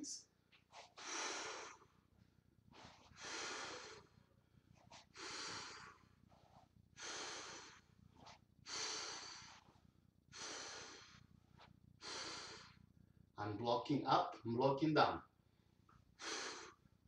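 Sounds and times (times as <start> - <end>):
man breathing out hard: 3.2 - 4.2, 10.4 - 11.2, 12.0 - 12.8, 16.2 - 16.8.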